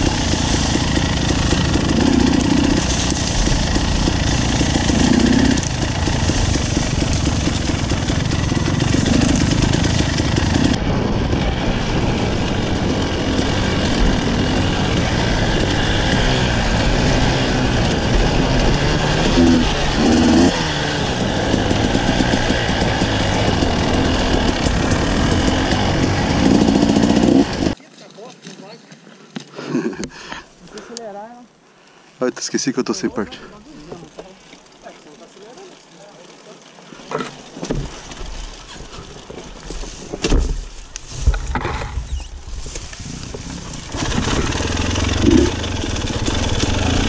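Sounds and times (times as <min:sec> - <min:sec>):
dirt bike engine revving: 0:00.0 - 0:27.8, 0:43.0 - 0:47.0.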